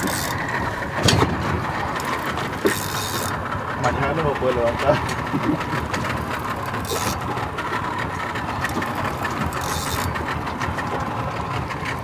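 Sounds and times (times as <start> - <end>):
fishing reel clicking and ratcheting: 0.0 - 0.4, 2.0 - 3.4, 6.3 - 7.3, 8.7 - 10.3
outboard engine running: 0.0 - 12.0.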